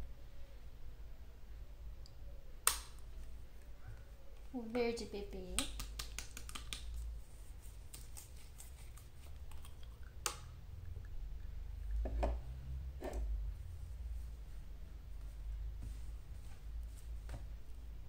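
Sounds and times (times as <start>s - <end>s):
paint pots and brush clicking: 4.4s - 13.4s.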